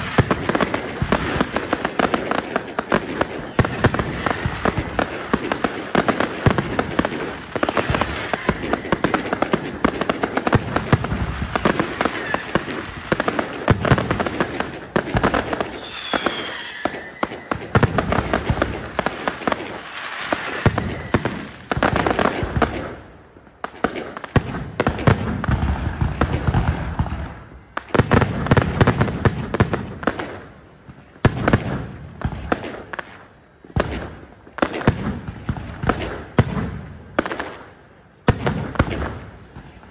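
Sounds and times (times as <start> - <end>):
firework whistles: 0.0 - 23.0
fireworks pops and bangs: 0.0 - 39.9.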